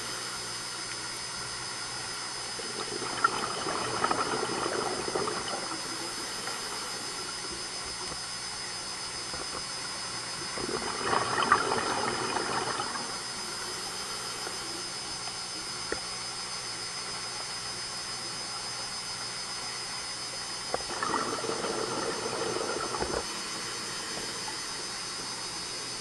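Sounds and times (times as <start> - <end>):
steady high-pitched hum: 0.0 - 26.0
bubbles gurgling underwater: 2.6 - 6.4, 10.4 - 13.3, 20.7 - 23.3.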